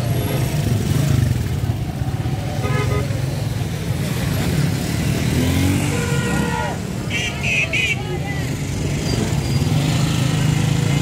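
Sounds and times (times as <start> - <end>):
vehicle engines rumbling: 0.0 - 11.0
car horn toot: 2.6 - 3.1.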